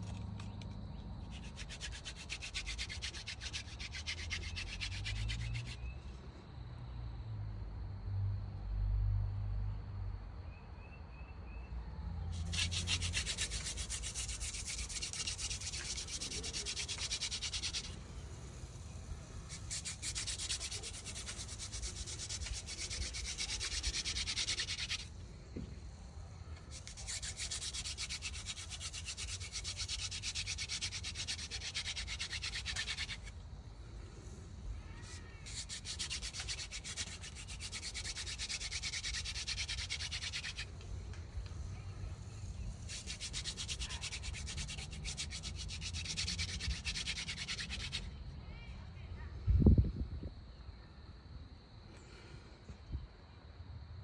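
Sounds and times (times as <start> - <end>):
wooden spindle rasping on board: 1.3 - 5.8, 12.4 - 18.0, 19.4 - 25.7, 26.6 - 33.3, 35.0 - 40.8, 42.8 - 48.0.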